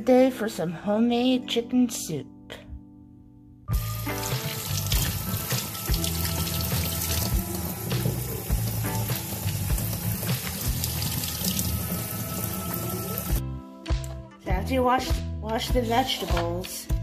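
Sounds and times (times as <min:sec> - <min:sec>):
background music with beat: 0:03.7 - 0:17.0
carrots rinsed under water: 0:03.8 - 0:13.4
kitchen faucet running into sink: 0:03.8 - 0:13.4.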